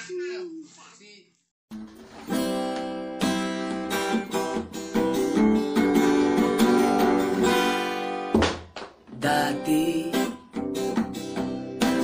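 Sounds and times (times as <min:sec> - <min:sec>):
guitar chords strummed: 0:01.7 - 0:12.0.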